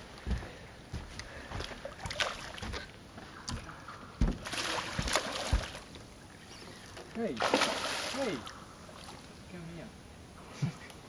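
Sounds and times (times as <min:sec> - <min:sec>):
fish splashing water: 0:01.7 - 0:06.1, 0:06.8 - 0:09.3
thumps against metal boat: 0:03.5 - 0:05.8.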